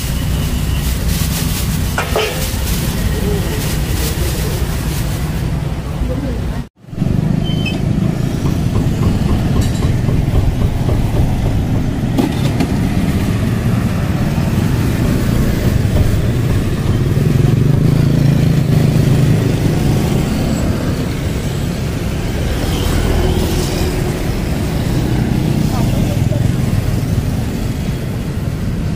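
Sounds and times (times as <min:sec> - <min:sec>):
motorbike and car engines: 0:00.0 - 0:28.9
louder engine passing by: 0:11.9 - 0:27.7.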